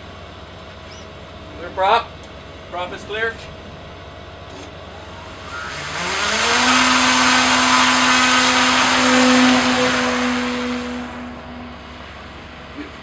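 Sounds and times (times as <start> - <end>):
propeller motor whine and hiss: 4.5 - 12.5.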